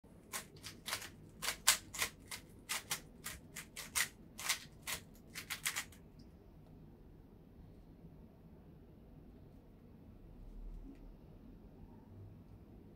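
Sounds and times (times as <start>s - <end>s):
puzzle cube clacking: 0.2s - 6.0s.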